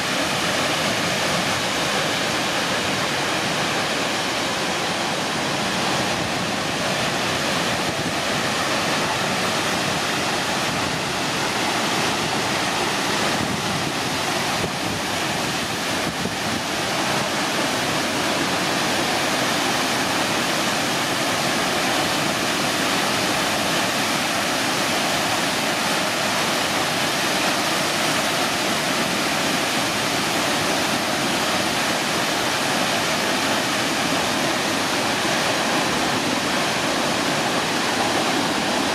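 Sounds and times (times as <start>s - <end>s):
waterfall crashing onto rocks: 0.0s - 38.9s.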